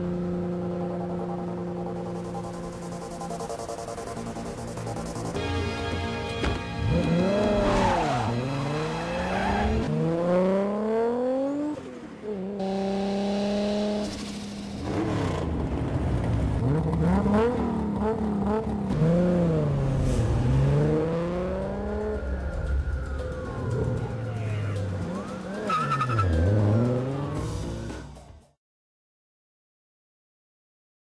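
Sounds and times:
car engine revving: 6.8s - 28.3s.

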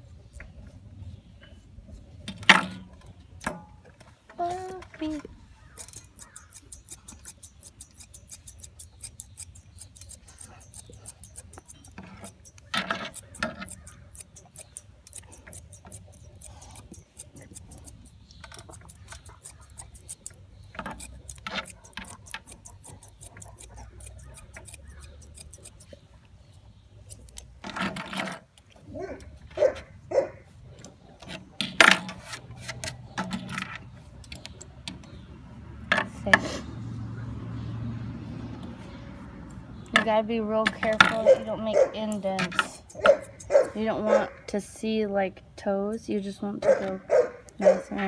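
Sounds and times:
metal comb through fur: 4.4s - 29.9s, 39.8s - 45.1s
shears snipping fur: 4.4s - 35.3s, 37.6s - 48.0s.

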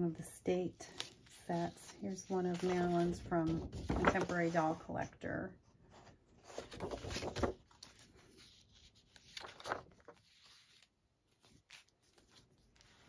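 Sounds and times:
paper and plastic sleeve rustling: 0.8s - 4.8s, 6.0s - 13.0s.

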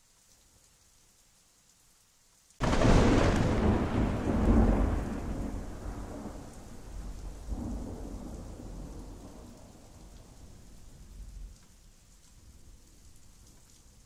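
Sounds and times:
steady rain: 0.0s - 14.0s
thunder crack and rumble: 2.6s - 11.5s.

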